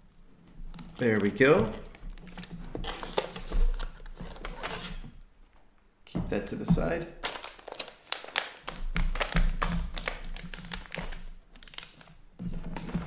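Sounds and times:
plastic film crinkling: 0:00.6 - 0:05.0, 0:07.2 - 0:13.0.

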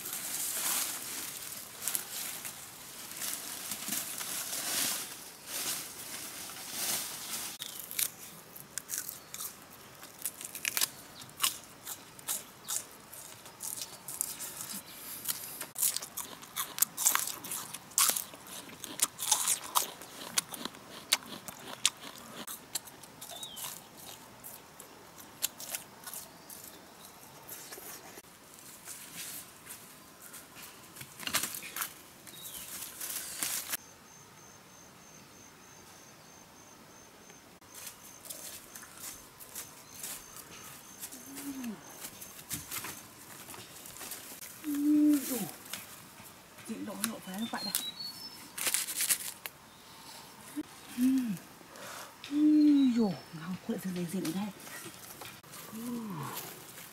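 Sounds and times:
soft scraping and rustling: 0:00.0 - 0:07.6, 0:27.5 - 0:33.8
crunchy food chewing: 0:07.6 - 0:28.3.

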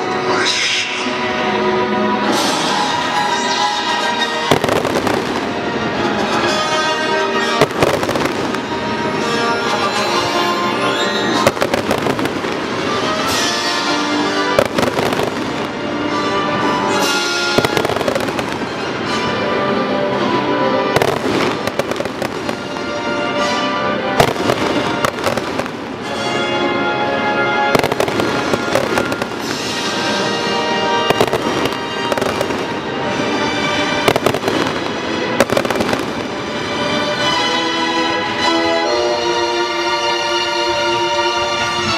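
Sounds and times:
loud orchestral music: 0:00.0 - 0:41.9
fireworks bursting: 0:02.4 - 0:19.3, 0:20.8 - 0:26.4, 0:27.3 - 0:37.4.

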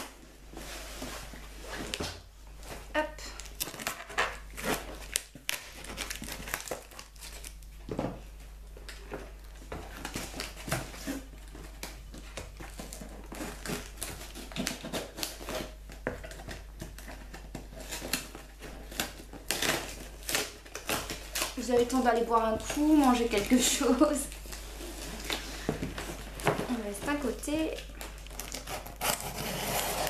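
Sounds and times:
parcel packaging crinkling: 0:03.2 - 0:07.8, 0:08.9 - 0:30.0
packing tape tearing: 0:03.4 - 0:07.6, 0:10.0 - 0:22.0, 0:27.8 - 0:30.0.

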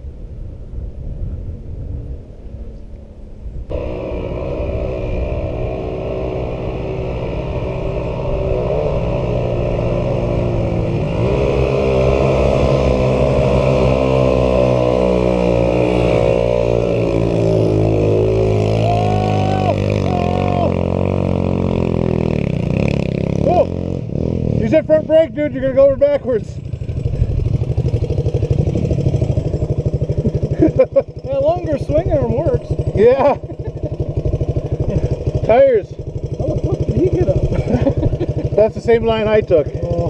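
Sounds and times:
atv engines revving: 0:03.7 - 0:40.0.

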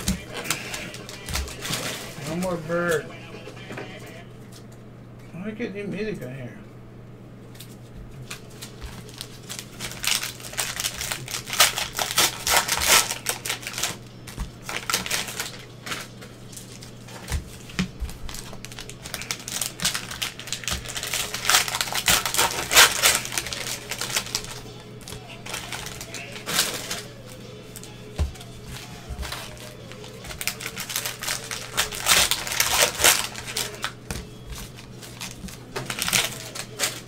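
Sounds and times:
plastic wrappers crinkling and tearing: 0:00.0 - 0:03.0, 0:07.6 - 0:37.0.

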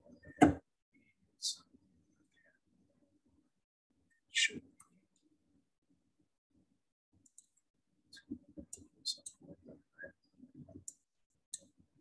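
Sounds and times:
computer mouse clicks: 0:07.2 - 0:07.6.

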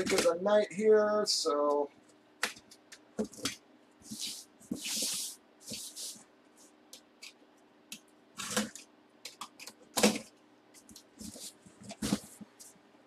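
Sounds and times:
cardboard flaps rustling: 0:10.9 - 0:12.6.

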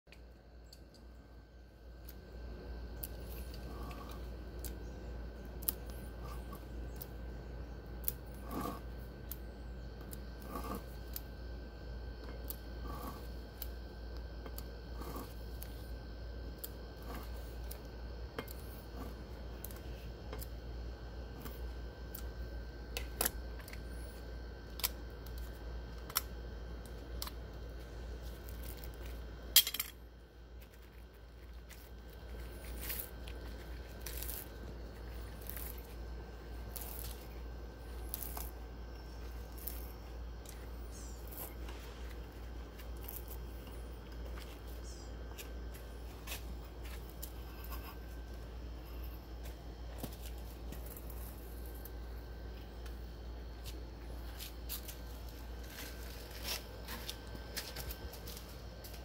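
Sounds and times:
steady low hum: 0:00.1 - 0:59.0
wire stripper clicks and scrapes: 0:08.0 - 0:11.3.

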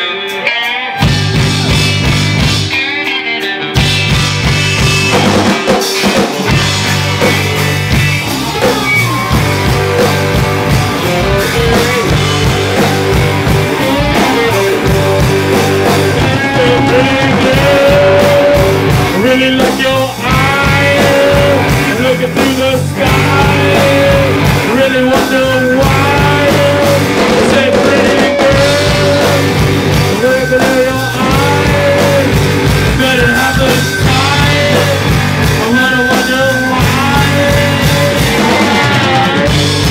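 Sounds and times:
drum kit: 0:00.0 - 0:39.9
electric guitar: 0:00.0 - 0:39.9
person singing: 0:10.9 - 0:39.9.

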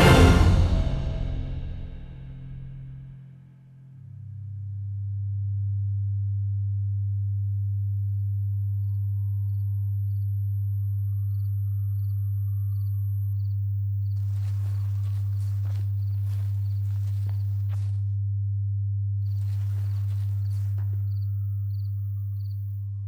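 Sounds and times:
pure low drone: 0:00.0 - 0:23.0
faint cricket-like chirps: 0:07.6 - 0:18.0, 0:19.2 - 0:23.0
rustle of noise: 0:14.2 - 0:18.1, 0:19.3 - 0:21.3.

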